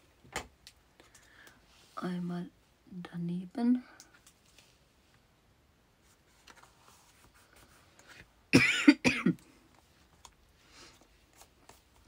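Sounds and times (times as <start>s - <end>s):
paper rustling: 6.1s - 8.2s
person coughing: 8.5s - 9.5s.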